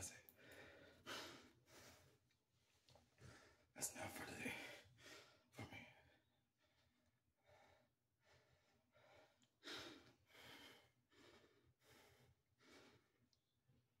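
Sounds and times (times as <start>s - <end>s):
man breathing: 0.2s - 2.2s, 4.4s - 13.2s.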